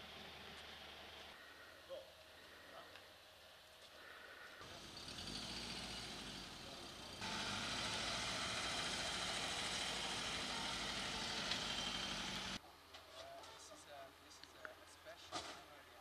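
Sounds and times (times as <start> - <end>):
vehicle engine running: 4.6 - 12.6.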